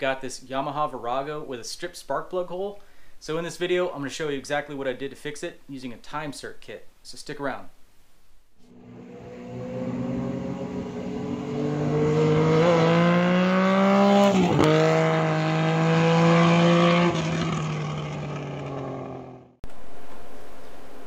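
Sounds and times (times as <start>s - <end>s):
vehicle engine accelerating: 8.7s - 19.6s.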